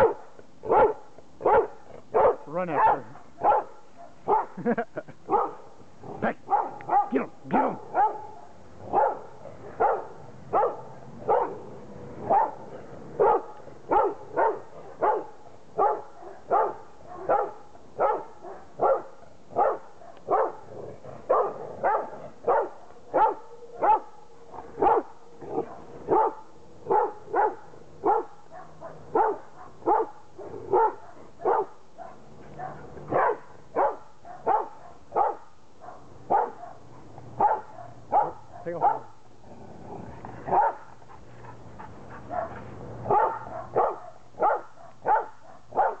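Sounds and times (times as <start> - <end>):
dog barking: 0.0 - 4.6, 5.3 - 5.7, 6.5 - 11.6, 12.2 - 12.6, 13.2 - 20.7, 21.3 - 39.2, 40.5 - 40.9, 42.2 - 46.0.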